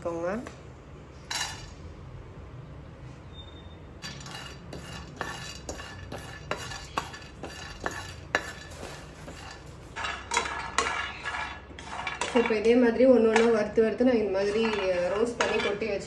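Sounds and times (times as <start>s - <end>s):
utensil scraping and knocking pan: 4.0s - 16.0s.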